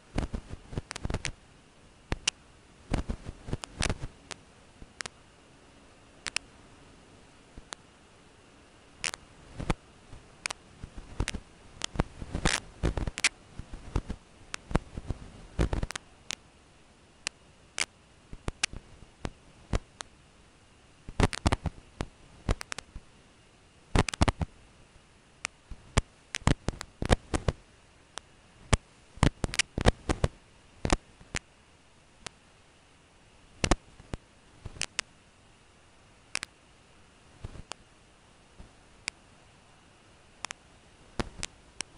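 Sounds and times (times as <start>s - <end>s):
sharp clicks and crackles: 0.1s - 1.4s, 2.1s - 5.2s, 6.2s - 6.5s, 9.0s - 9.8s, 10.4s - 16.4s, 17.2s - 20.1s, 21.1s - 23.1s, 24.0s - 24.5s, 25.4s - 31.5s, 32.2s - 32.4s, 33.6s - 35.1s, 36.3s - 36.6s, 41.2s - 41.9s.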